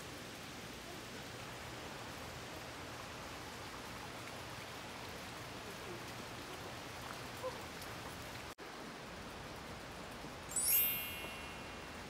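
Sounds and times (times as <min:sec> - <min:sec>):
wet outdoor hiss: 0:00.0 - 0:12.0
faint chirp: 0:10.5 - 0:12.0.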